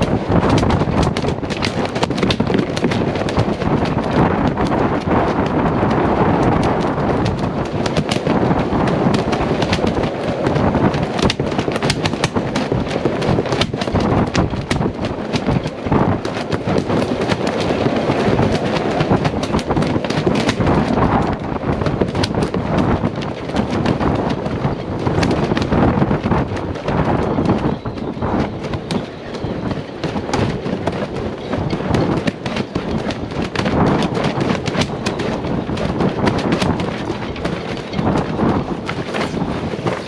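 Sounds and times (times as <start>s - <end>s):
wind buffeting microphone: 0.0s - 40.0s.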